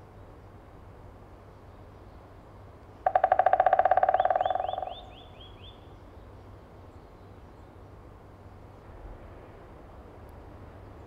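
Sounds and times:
woodpecker drumming on wood: 0:03.0 - 0:05.2
bird chirping: 0:03.1 - 0:05.9.

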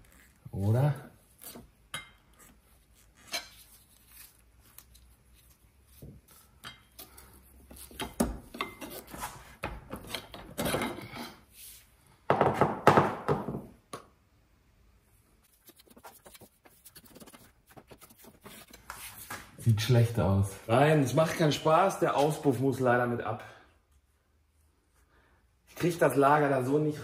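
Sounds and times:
metal car parts scraping and clunking: 0:07.7 - 0:11.5.

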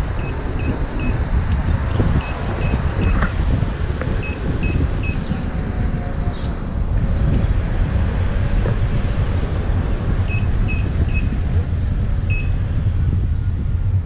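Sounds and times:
high-pitched electronic beeps: 0:00.0 - 0:01.2, 0:02.2 - 0:03.2, 0:04.2 - 0:05.3, 0:10.3 - 0:11.4, 0:12.3 - 0:12.6
low road rumble: 0:00.0 - 0:14.0
wind buffeting microphone: 0:00.0 - 0:14.0.

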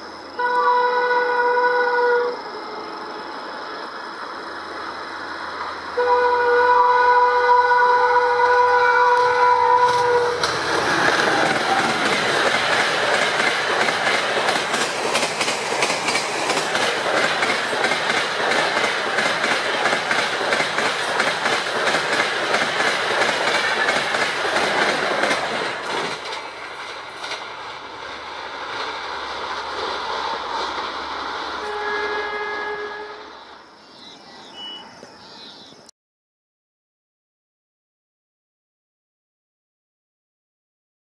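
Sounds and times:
distant train rumble: 0:00.0 - 0:35.8
train passing close by: 0:00.0 - 0:35.8
wheels clacking over rail joints: 0:09.1 - 0:31.9.

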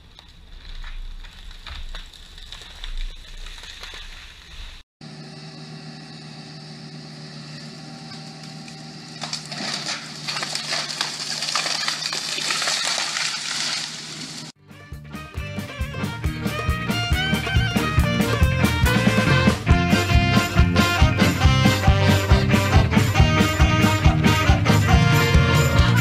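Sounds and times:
wood cracking and snapping: 0:00.0 - 0:04.7, 0:09.2 - 0:14.5
excavator engine running: 0:05.0 - 0:10.6, 0:15.4 - 0:26.0.

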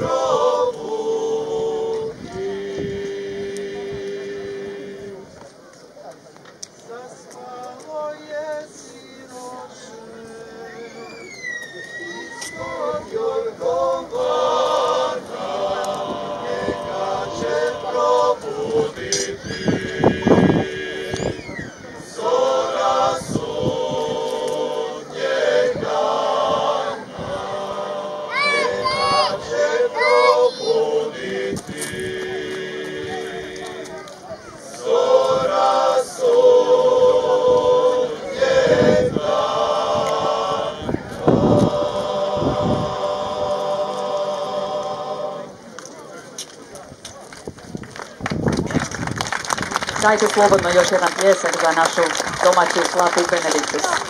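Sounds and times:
male a cappella group singing: 0:00.0 - 0:05.4, 0:06.8 - 0:11.1, 0:12.4 - 0:34.0, 0:34.7 - 0:45.6.

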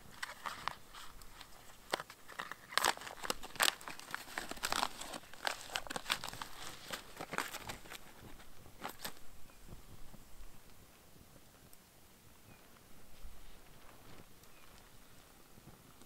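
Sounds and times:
foil pouch crinkling: 0:00.0 - 0:09.3.

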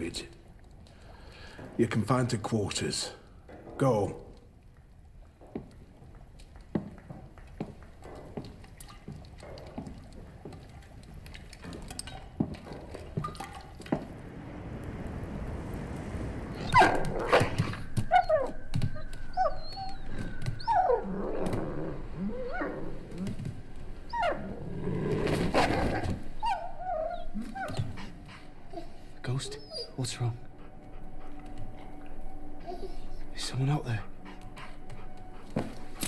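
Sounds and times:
wolf whining and whimpering: 0:16.6 - 0:24.7, 0:25.6 - 0:33.3.

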